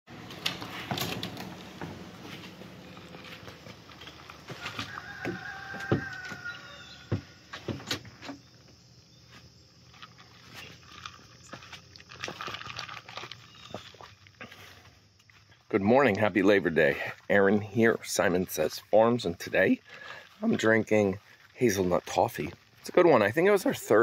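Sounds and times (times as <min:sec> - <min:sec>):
drawn-out animal call: 0:04.1 - 0:07.4.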